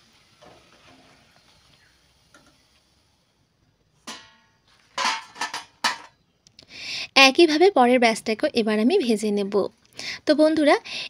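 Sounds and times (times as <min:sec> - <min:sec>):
frying oil sizzling: 0:00.0 - 0:03.3
fried snacks clattering onto plate: 0:04.0 - 0:06.2.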